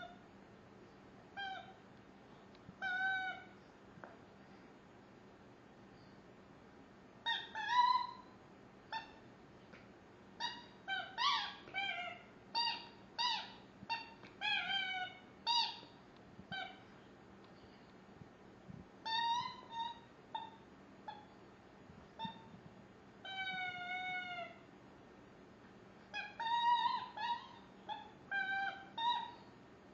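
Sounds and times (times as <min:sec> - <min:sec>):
squeaky chew toy squeaking: 0:10.4 - 0:15.9.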